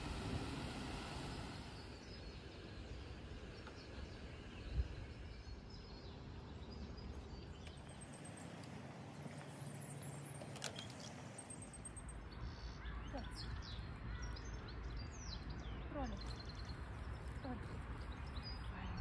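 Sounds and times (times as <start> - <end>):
wind rumble on microphone: 0.0 - 9.3
faint bird chirps: 1.2 - 19.0.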